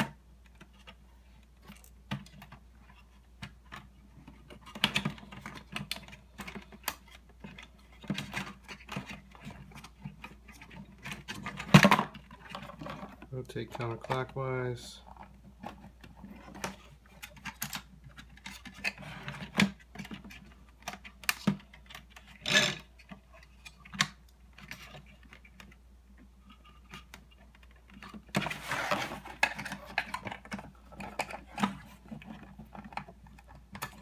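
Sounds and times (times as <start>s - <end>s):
rustling scraping: 27.9s - 33.0s.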